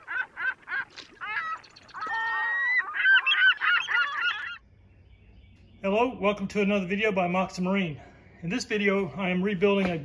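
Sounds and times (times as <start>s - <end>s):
honking bird calls: 0.0s - 4.6s.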